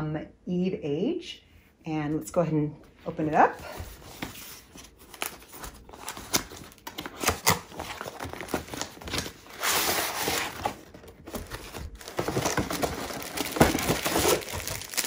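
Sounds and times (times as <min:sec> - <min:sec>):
cardboard box being opened: 0:03.8 - 0:15.0.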